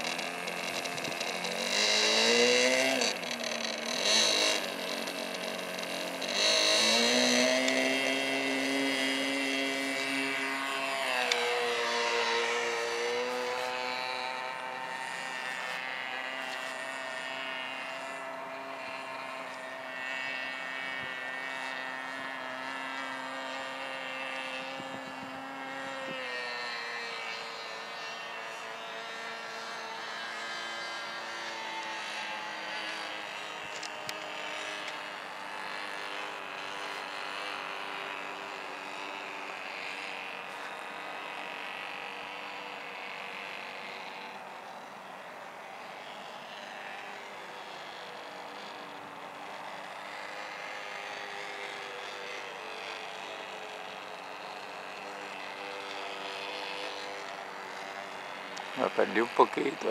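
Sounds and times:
model airplane motor droning: 0.0s - 59.9s.

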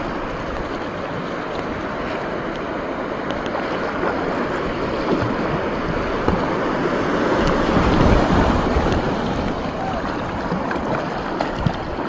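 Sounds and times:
paddle splashing: 0.0s - 12.0s
river water rushing: 0.0s - 12.0s.

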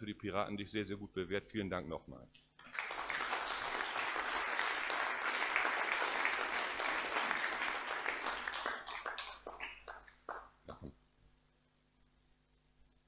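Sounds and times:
audience applauding: 2.6s - 10.9s.

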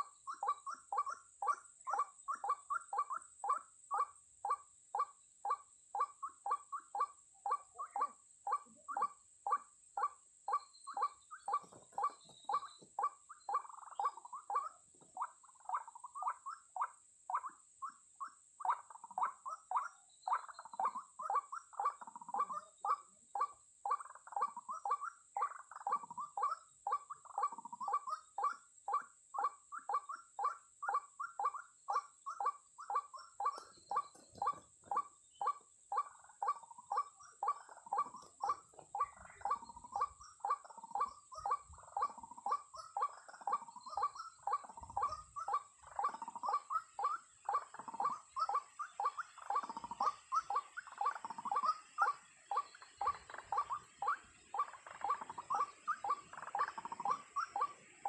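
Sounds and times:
waterhen calling: 29.5s - 58.0s.

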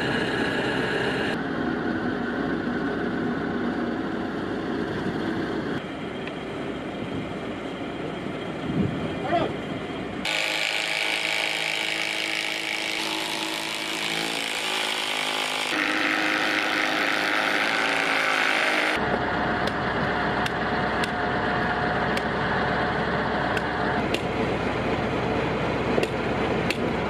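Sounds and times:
low hum: 0.0s - 14.7s, 15.8s - 27.0s
cordless drill running: 10.3s - 19.0s.

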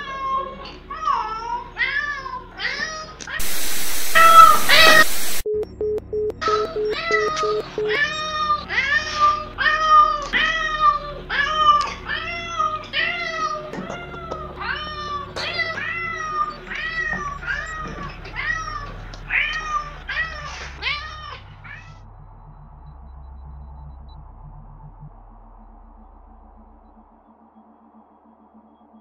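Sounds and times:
cat meowing: 0.0s - 5.4s, 6.4s - 22.0s.

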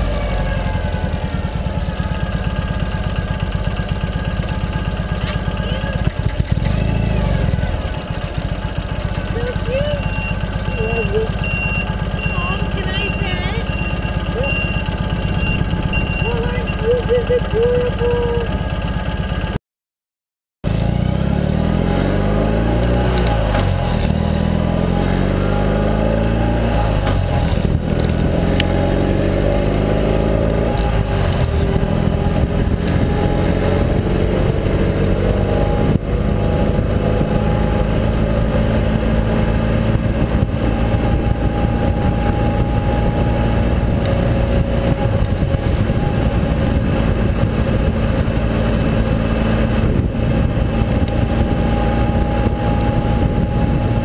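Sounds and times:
motorcycle engine accelerating: 0.0s - 19.6s, 20.6s - 54.0s
wind rush on microphone: 30.9s - 54.0s.

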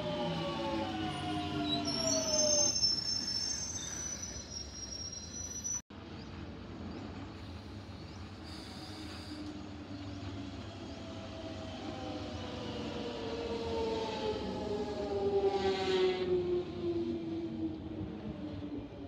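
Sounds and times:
high thin squeal: 1.8s - 5.8s
train rumble: 6.0s - 19.0s.

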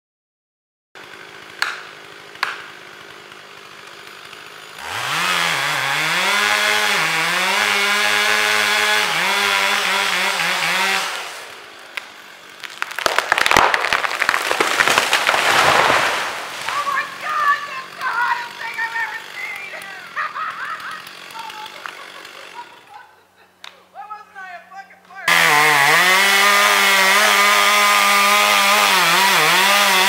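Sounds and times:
chainsaw idling and revving: 1.0s - 23.6s, 25.2s - 30.0s
wood cracking and snapping: 11.9s - 18.1s.

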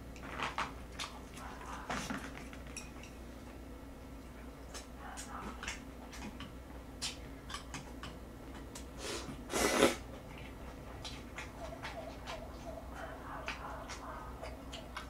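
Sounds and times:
lip smacks and chewing: 0.1s - 3.6s, 4.2s - 15.0s
slurp of noodles: 9.0s - 10.0s.

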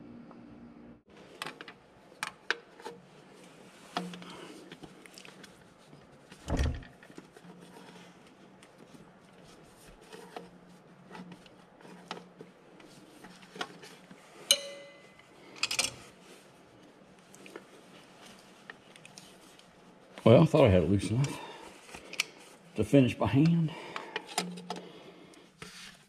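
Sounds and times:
sharp metal clink: 14.5s - 15.2s.

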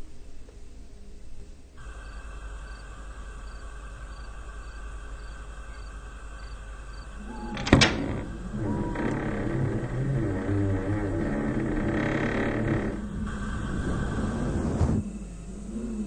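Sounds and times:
night background: 0.0s - 16.0s
cricket chirping: 1.8s - 9.9s
window banging shut: 7.4s - 9.1s.

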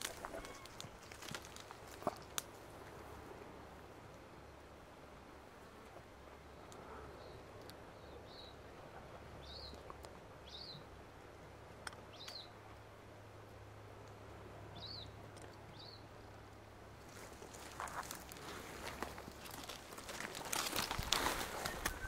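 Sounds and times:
faint outdoor background noise: 0.0s - 22.0s
small bird chirping: 12.1s - 12.6s.

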